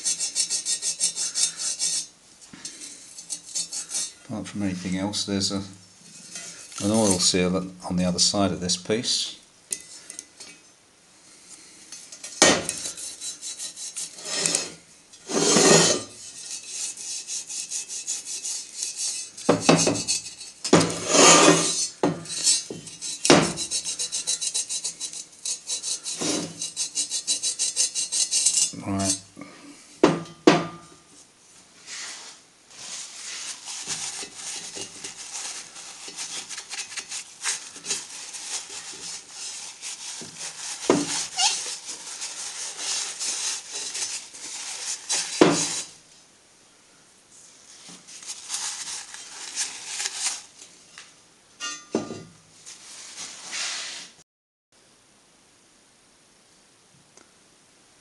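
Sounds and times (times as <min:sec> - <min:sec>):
hand scrubbing metal: 0:00.0 - 0:07.5, 0:11.9 - 0:29.2, 0:31.9 - 0:46.0, 0:47.9 - 0:50.6
scrapes: 0:00.0 - 0:07.5, 0:11.3 - 0:29.5, 0:31.2 - 0:46.0, 0:47.7 - 0:54.2.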